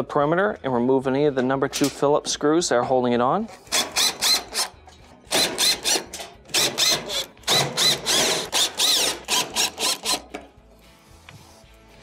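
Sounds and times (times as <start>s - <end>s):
cordless drill motor whining: 7.8s - 10.2s.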